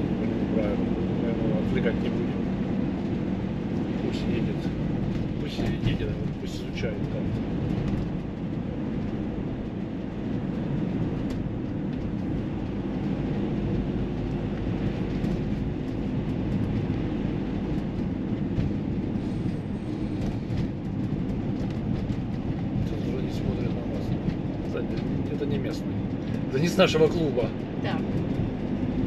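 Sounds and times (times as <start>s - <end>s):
car engine rumble: 0.0s - 29.0s
tyre road noise: 0.0s - 29.0s.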